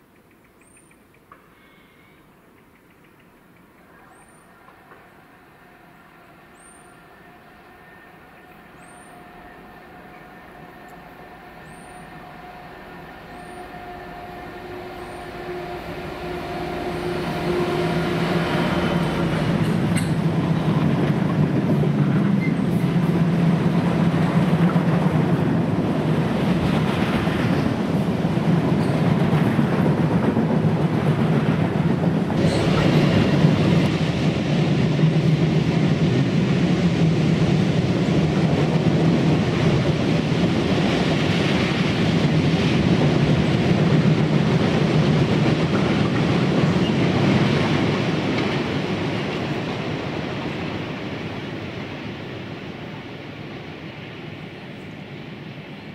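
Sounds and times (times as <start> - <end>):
train rumbling past: 0.2 - 55.9
diesel locomotive engine humming: 3.6 - 55.9
wheels clacking on rails: 8.9 - 52.0.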